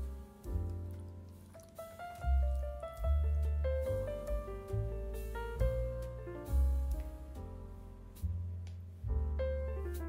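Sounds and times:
background music with bass line: 2.3 - 10.0.

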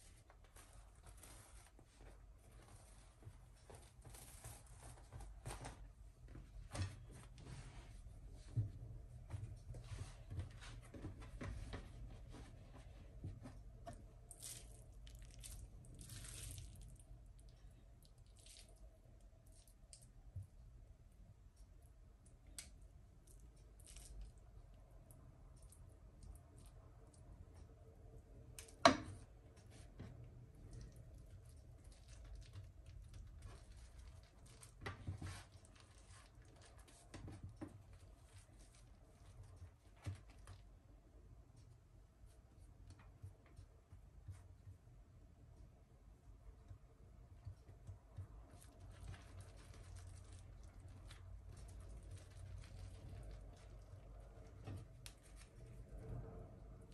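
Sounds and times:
pastry wrapper rustling: 0.0 - 5.8, 14.2 - 20.0, 30.6 - 40.7, 48.5 - 56.1
wrapper sheets rustling: 0.0 - 6.0.

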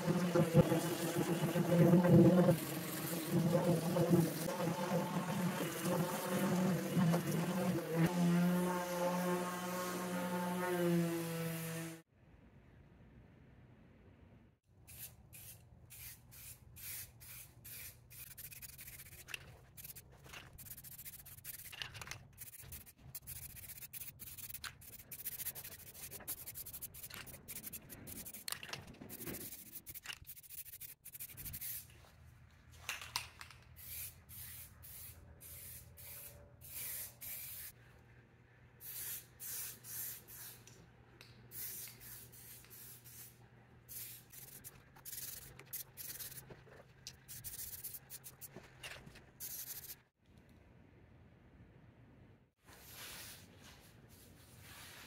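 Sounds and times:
aerosol spray hissing: 38.8 - 40.6, 41.5 - 46.4.

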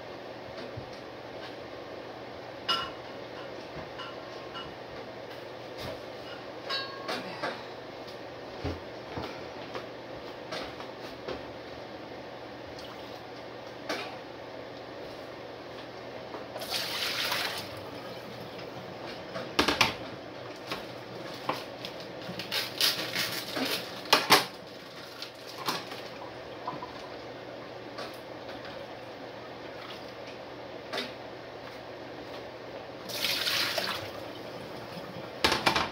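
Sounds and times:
fan hiss: 0.0 - 35.6
pots and dishes clattering: 6.2 - 7.7
water rushing into pot: 16.6 - 17.8, 33.1 - 35.0.

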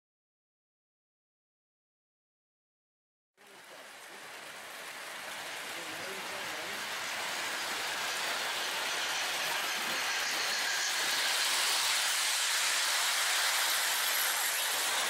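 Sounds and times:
model train rolling hiss: 3.5 - 15.0.

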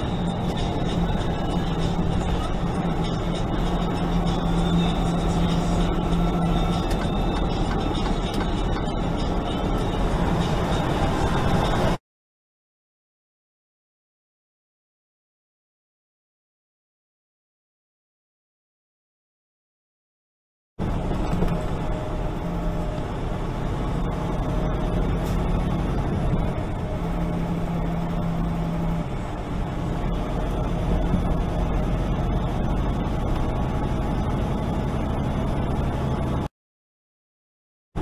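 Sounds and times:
road noise inside cab: 0.0 - 12.0, 20.8 - 36.5
truck engine drone: 0.0 - 12.0, 20.8 - 36.5.

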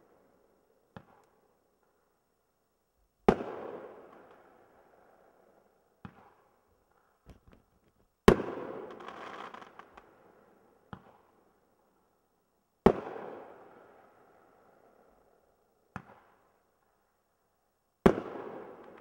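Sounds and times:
small firework pops: 0.9 - 2.0, 6.0 - 10.1, 10.9 - 11.3, 18.0 - 19.0.

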